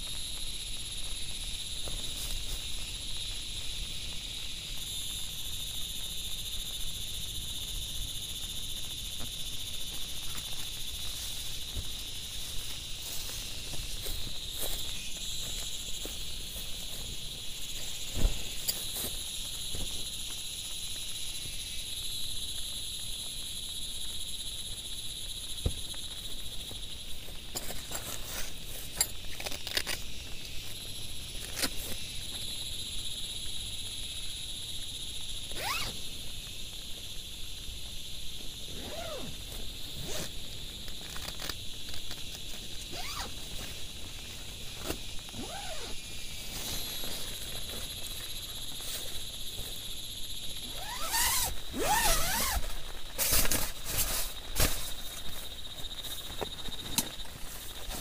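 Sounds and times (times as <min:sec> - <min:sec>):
high-pitched insect chorus: 0:00.0 - 0:58.0
tent fabric rustling and clicks: 0:00.1 - 0:05.2, 0:08.8 - 0:21.7, 0:25.4 - 0:32.8, 0:35.3 - 0:36.9, 0:38.6 - 0:49.9, 0:50.5 - 0:58.0
tent zipper sweeps: 0:35.5 - 0:36.0, 0:38.7 - 0:40.4, 0:42.9 - 0:43.7, 0:44.8 - 0:47.4, 0:50.6 - 0:54.9.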